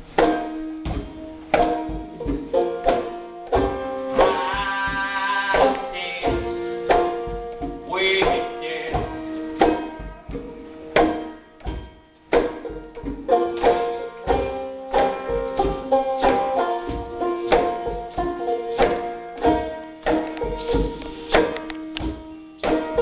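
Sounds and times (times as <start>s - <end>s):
acoustic guitar picking: 0.0s - 23.0s
banjo: 0.0s - 23.0s
snare and bass drum: 0.1s - 23.0s
djembe hand drum: 0.2s - 23.0s
person singing: 4.1s - 7.1s, 7.8s - 9.3s.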